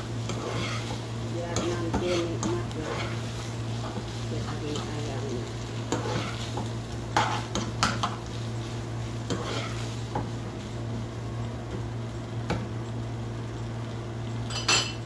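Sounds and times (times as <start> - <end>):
steady low hum: 0.0 - 15.0
spoon scraping a frying pan: 0.2 - 10.3.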